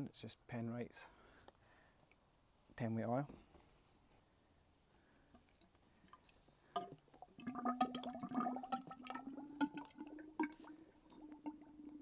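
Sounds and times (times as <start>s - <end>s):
oil glugging into tube: 5.4s - 12.0s.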